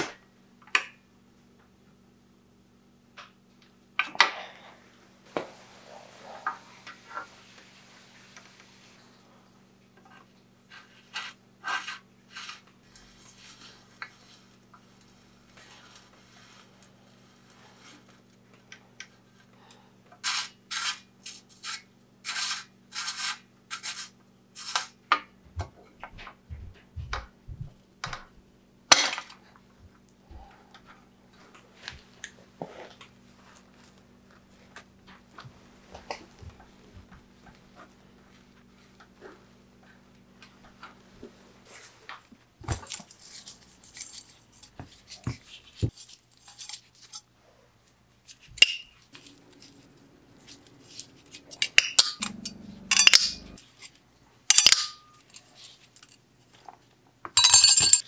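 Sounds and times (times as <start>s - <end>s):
quiet rubbing: 5.3s - 9.4s
metal parts clicking and scraping: 42.8s - 45.2s, 45.9s - 47.3s, 50.4s - 56.2s, 57.4s - 58.0s.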